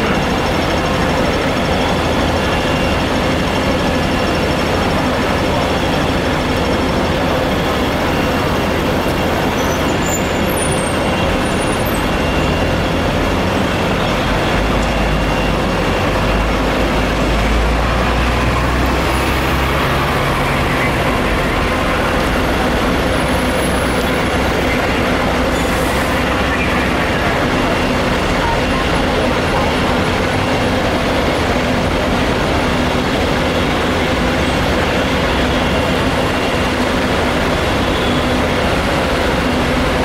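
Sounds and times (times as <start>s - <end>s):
diesel engines running: 0.0s - 40.0s.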